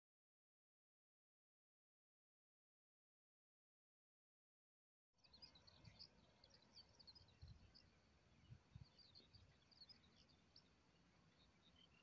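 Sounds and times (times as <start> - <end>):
small birds chirping: 5.2 - 12.0.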